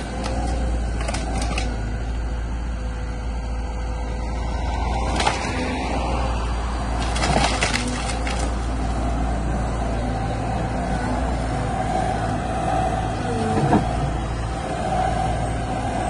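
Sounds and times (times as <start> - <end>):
wood cracking: 0.0 - 1.8, 5.0 - 5.7, 6.9 - 8.7
excavator diesel engine running: 0.0 - 16.0.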